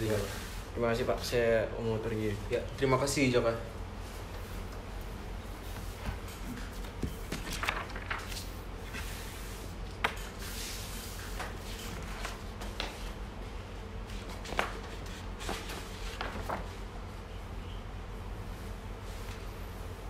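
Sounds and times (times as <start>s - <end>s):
steady low hum: 0.0s - 20.0s
papers rustling: 6.5s - 9.2s, 14.2s - 16.8s.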